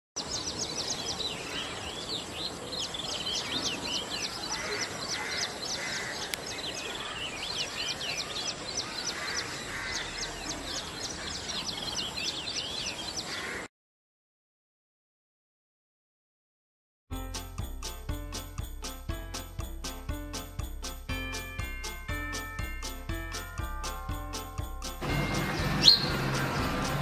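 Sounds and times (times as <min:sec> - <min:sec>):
chorus of small birds chirping: 0:00.2 - 0:13.7, 0:25.0 - 0:27.0.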